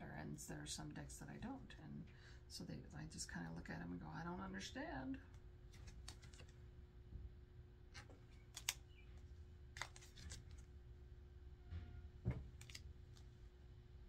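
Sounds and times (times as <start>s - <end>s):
steady low hum: 0.0s - 14.0s
cards clicking and tapping: 5.3s - 6.6s, 8.0s - 8.9s, 9.7s - 10.7s, 12.3s - 13.3s.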